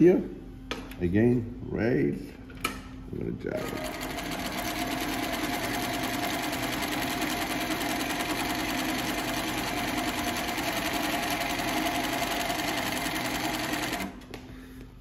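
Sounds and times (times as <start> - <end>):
sewing machine motor hum: 3.6 - 14.4
sewing machine needle clattering: 3.7 - 14.2.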